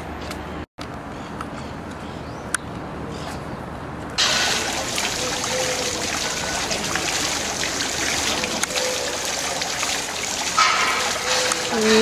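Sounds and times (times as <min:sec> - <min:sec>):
rushing water hiss: 0:04.2 - 0:12.0.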